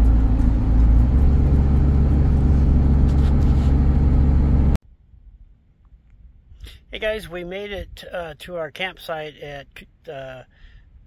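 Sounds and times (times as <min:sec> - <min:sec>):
road and tyre noise: 0:00.0 - 0:04.8
van engine hum: 0:00.0 - 0:04.8.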